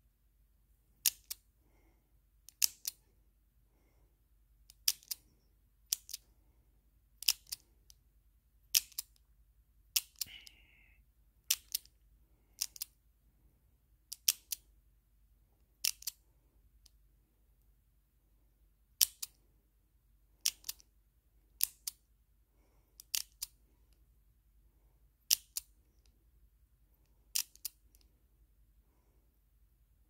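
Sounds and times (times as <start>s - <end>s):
padlock dial clicking: 1.0s - 1.4s, 2.4s - 3.0s, 4.7s - 5.2s, 7.2s - 8.0s, 8.6s - 9.2s, 9.9s - 10.2s, 11.5s - 12.0s, 14.1s - 14.7s, 15.8s - 16.2s, 20.4s - 20.8s, 23.0s - 23.6s, 25.2s - 25.7s, 27.3s - 28.0s.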